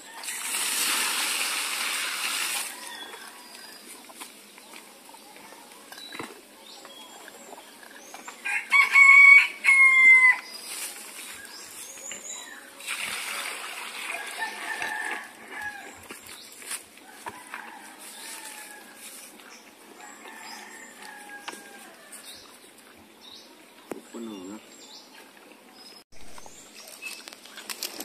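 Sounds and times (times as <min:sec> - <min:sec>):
rooster crowing: 0:08.4 - 0:10.5, 0:14.1 - 0:16.0, 0:17.0 - 0:19.1, 0:20.0 - 0:22.2.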